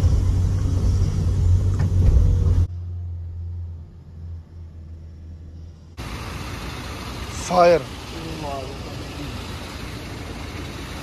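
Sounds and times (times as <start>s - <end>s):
dull low engine hum: 0.0s - 11.0s
truck engine and road rumble: 0.0s - 11.0s.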